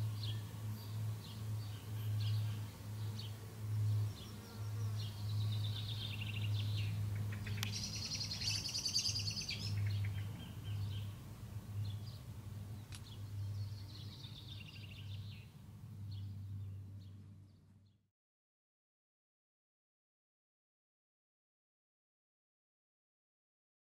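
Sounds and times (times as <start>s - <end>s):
birds singing trills: 0.0s - 18.0s.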